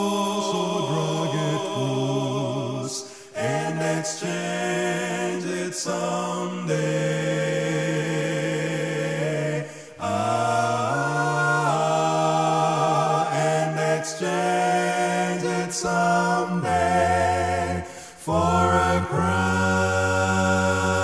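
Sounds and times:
male quartet singing harmony: 0.0s - 21.0s
singer breath: 3.0s - 3.4s, 9.6s - 10.0s, 17.8s - 18.2s.

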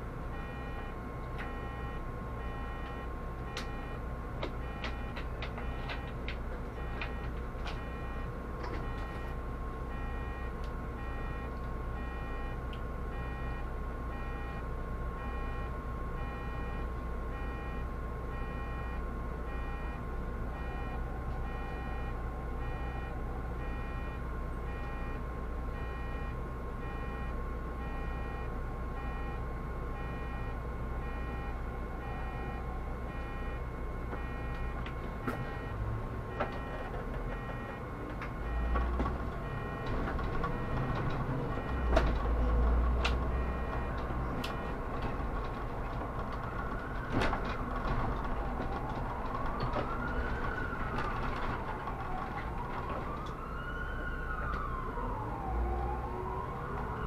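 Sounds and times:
bus engine and road rumble: 0.0s - 57.0s
electronic beeps: 1.5s - 4.0s, 25.8s - 29.4s, 30.0s - 33.6s, 35.4s - 37.8s.

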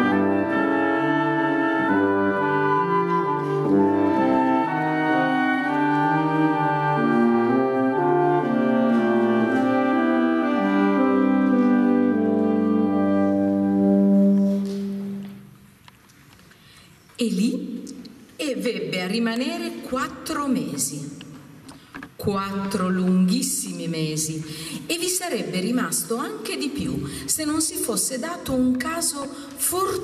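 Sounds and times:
woodwind ensemble sustained chords: 0.0s - 15.4s.

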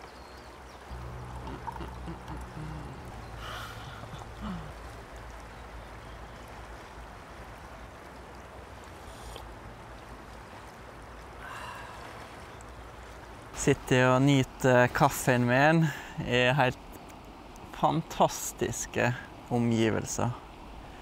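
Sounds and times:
river water flowing: 0.0s - 21.0s
coffee trickling into a mug: 1.2s - 2.6s
breathy sips and exhales: 1.3s - 4.9s, 9.0s - 9.5s.

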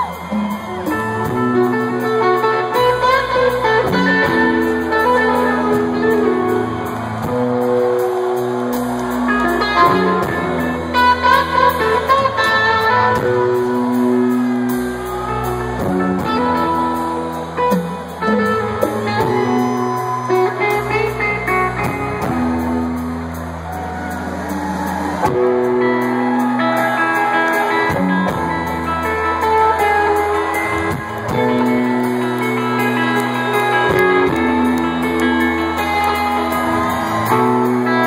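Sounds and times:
rock band playing guitar chords: 0.0s - 38.0s.

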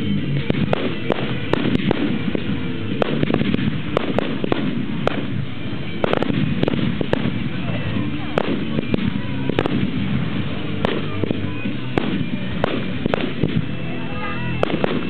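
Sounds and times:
continuous rumble: 0.0s - 15.0s
fireworks bangs: 0.0s - 15.0s.

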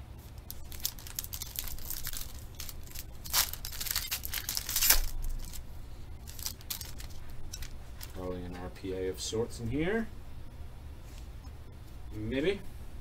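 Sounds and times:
foil wrapper tearing and crinkling: 0.3s - 5.6s, 6.2s - 8.2s.

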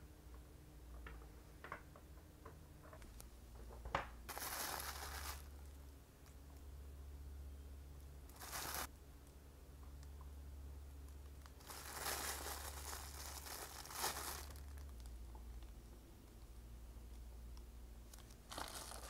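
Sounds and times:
faint low hum: 0.0s - 19.0s
sponges crinkling in plastic tray: 3.6s - 5.5s, 8.3s - 8.9s, 11.4s - 15.1s, 18.1s - 19.0s.

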